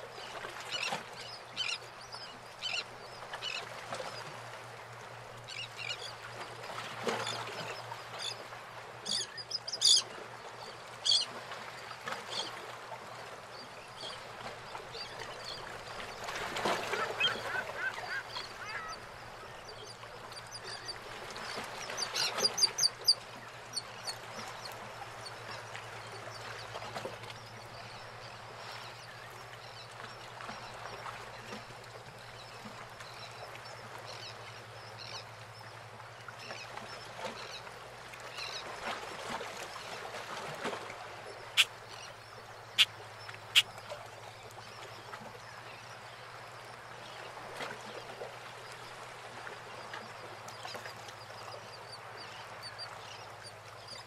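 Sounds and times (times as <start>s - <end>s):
water lapping against boat hulls: 0.0s - 53.9s.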